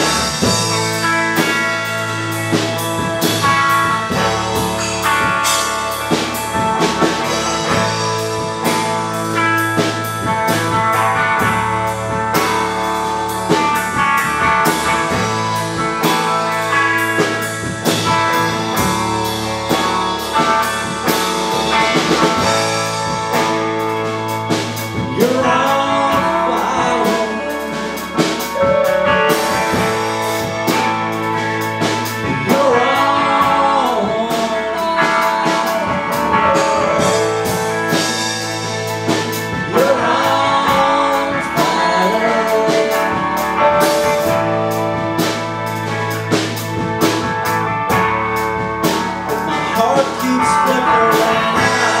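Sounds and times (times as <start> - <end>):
bass guitar: 0.0 - 52.0
drum kit with cymbals: 0.0 - 52.0
electric guitar: 0.0 - 52.0
man singing: 24.9 - 29.0, 32.2 - 37.2, 39.6 - 44.5, 49.3 - 52.0.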